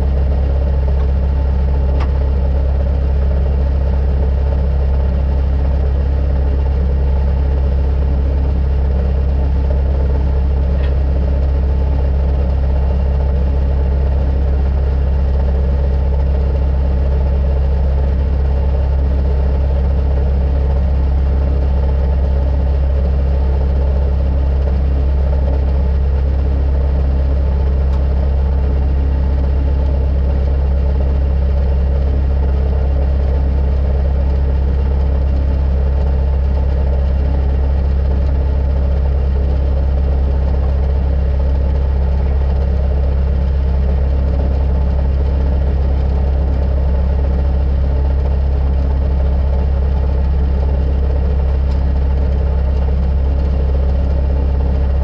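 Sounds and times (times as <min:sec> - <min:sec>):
loader engine idling: 0:00.0 - 0:55.0.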